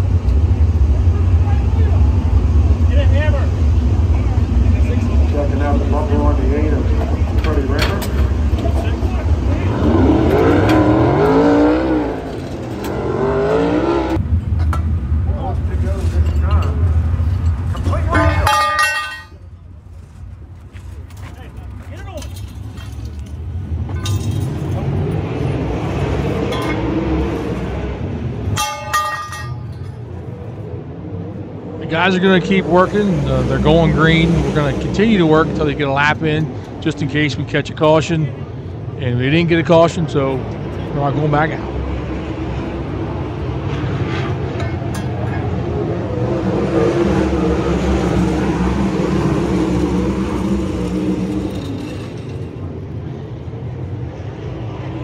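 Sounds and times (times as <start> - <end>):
race car engines rumbling: 0.0 - 55.0
steel tool striking metal: 28.5 - 30.0.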